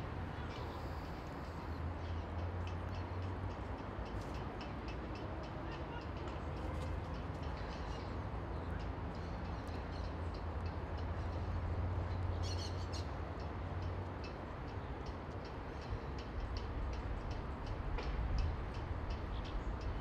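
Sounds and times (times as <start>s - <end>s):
light ticks: 2.4s - 7.6s.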